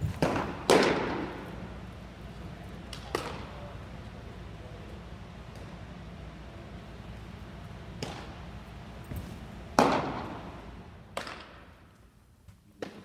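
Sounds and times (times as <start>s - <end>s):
baseball smacking into mitt: 0.0s - 1.4s, 11.1s - 11.6s.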